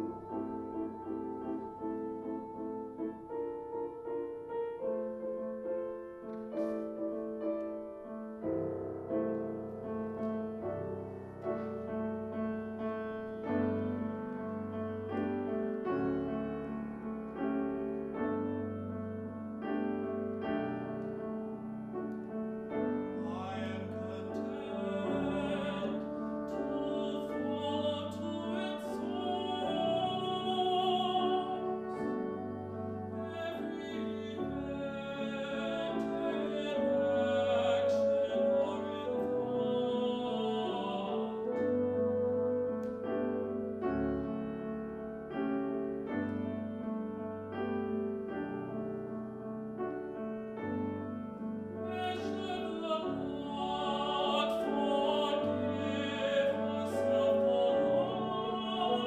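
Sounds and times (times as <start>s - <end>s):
grand piano playing: 0.0s - 59.0s
tenor voice singing: 23.1s - 42.3s, 51.8s - 59.0s.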